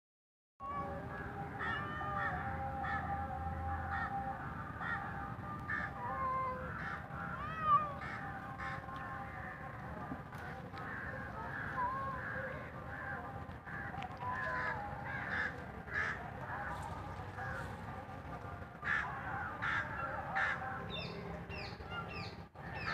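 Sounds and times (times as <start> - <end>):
birds chirping: 3.8 - 22.9
birds calling harshly: 4.8 - 9.7, 10.4 - 22.9.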